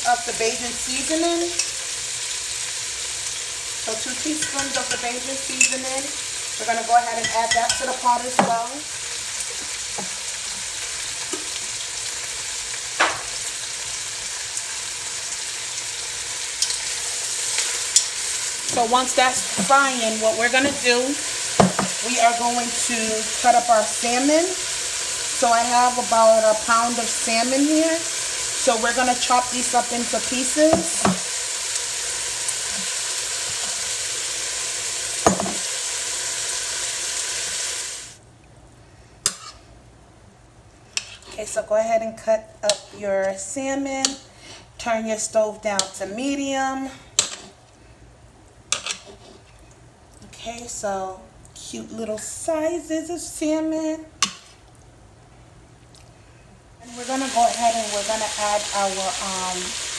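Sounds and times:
vegetables sizzling in oil: 0:00.0 - 0:38.2, 0:39.2 - 0:39.8, 0:56.8 - 0:59.9
knock: 0:21.6 - 0:21.9, 0:35.3 - 0:35.6
spoon stirring pot: 0:39.2 - 0:39.6, 0:40.9 - 0:41.4.

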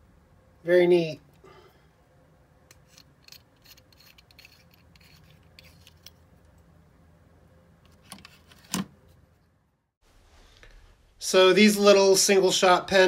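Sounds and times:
metal clicks and scrapes: 0:02.7 - 0:06.6.

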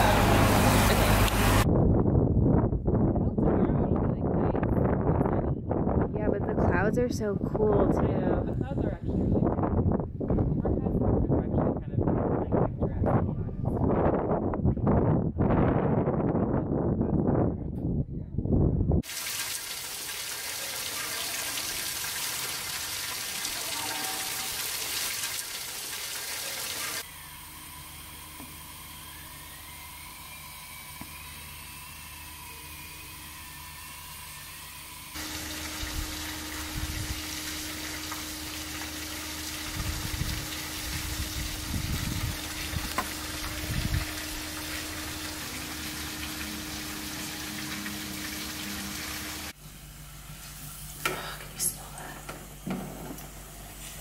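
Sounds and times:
steady hum: 0:00.0 - 0:02.0, 0:27.0 - 0:54.0
wind buffeting microphone: 0:00.3 - 0:19.1, 0:35.8 - 0:37.3, 0:39.6 - 0:44.9
faint wavering whistle: 0:28.9 - 0:33.9.

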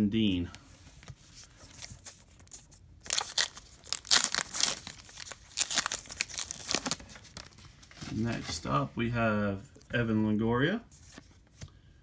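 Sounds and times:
wrapper crinkling and tearing: 0:01.9 - 0:07.7.

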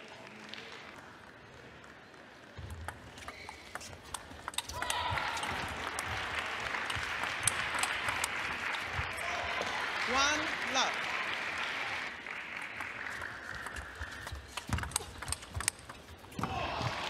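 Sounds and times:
table tennis ball clicking: 0:02.7 - 0:08.4, 0:13.2 - 0:16.3
crowd cheering and applause: 0:04.5 - 0:15.4, 0:16.4 - 0:17.0.

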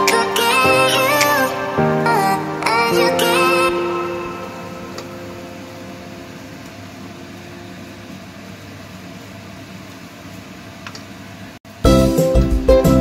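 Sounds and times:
music: 0:00.0 - 0:06.0, 0:11.7 - 0:13.0.

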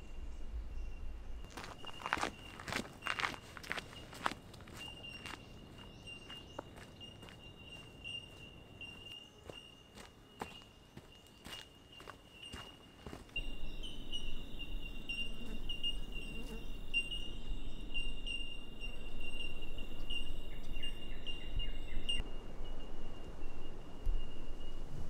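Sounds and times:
low rumble: 0:00.0 - 0:02.2
small birds chirping: 0:00.0 - 0:22.2
high insect drone: 0:00.8 - 0:25.0.

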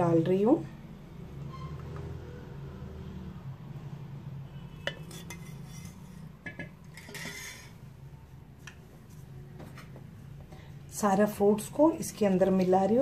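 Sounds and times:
spoon scraping a steel pan: 0:04.7 - 0:08.0.

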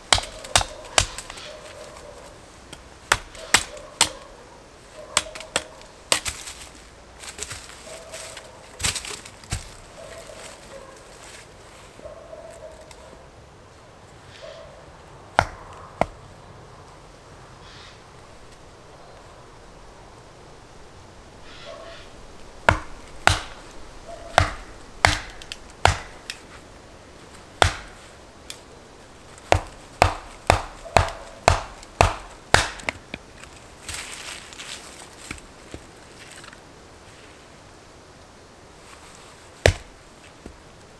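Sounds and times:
hatchet chopping firewood: 0:00.0 - 0:01.4, 0:02.7 - 0:04.2, 0:05.2 - 0:06.7, 0:15.4 - 0:16.2, 0:22.6 - 0:23.6, 0:24.3 - 0:26.4, 0:27.6 - 0:28.6, 0:29.3 - 0:33.3, 0:39.6 - 0:40.6.

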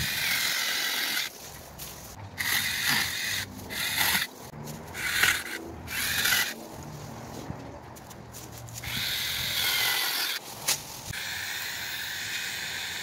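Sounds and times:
mini chainsaw whining: 0:04.9 - 0:06.6, 0:11.1 - 0:13.0.

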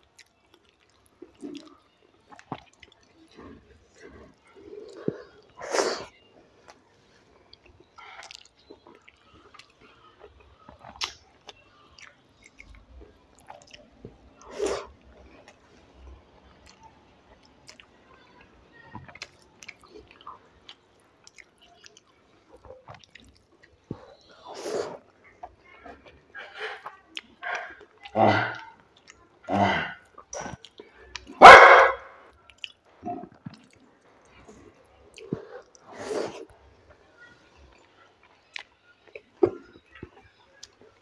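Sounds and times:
chewing with wet mouth clicks: 0:00.0 - 0:05.6, 0:07.4 - 0:15.8, 0:16.4 - 0:29.4, 0:30.0 - 0:31.4, 0:32.3 - 0:35.9, 0:37.7 - 0:41.0.

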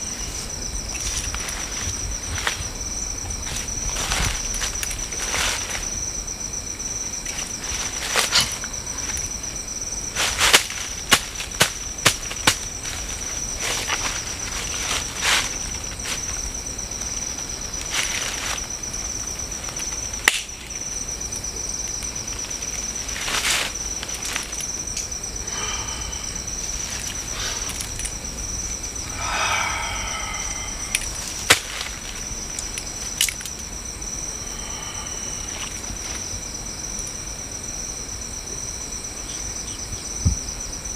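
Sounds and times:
crickets chirring: 0:00.0 - 0:40.9
dry leaves crackling and rustling: 0:10.1 - 0:20.2, 0:22.3 - 0:25.0, 0:30.1 - 0:33.5.

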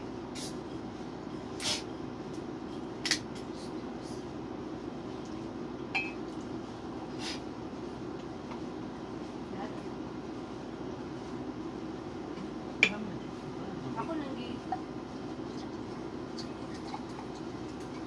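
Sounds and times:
steady low hum: 0:00.0 - 0:18.0
mug and bottle clinking: 0:06.0 - 0:06.2.

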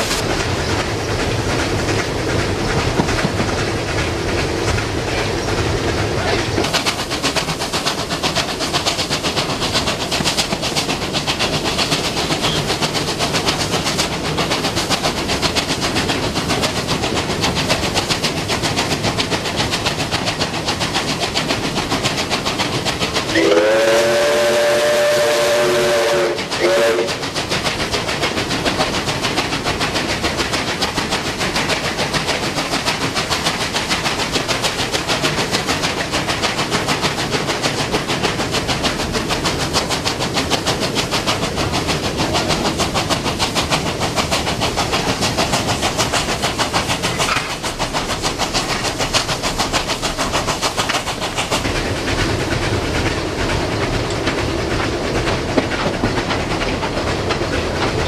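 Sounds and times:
steam hiss: 0:00.0 - 0:58.0
exhaust beat and wheel knocks: 0:01.5 - 0:04.9
steam locomotive whistle: 0:23.3 - 0:27.2.

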